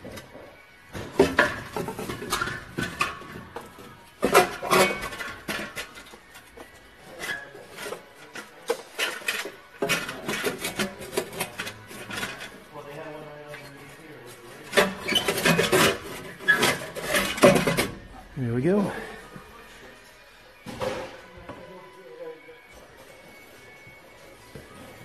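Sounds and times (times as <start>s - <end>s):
metal clanks and scrapes: 0.0s - 18.4s.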